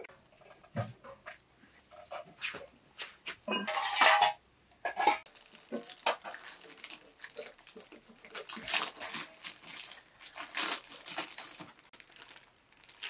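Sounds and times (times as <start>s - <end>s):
dishes and utensils clattering: 3.4s - 6.4s.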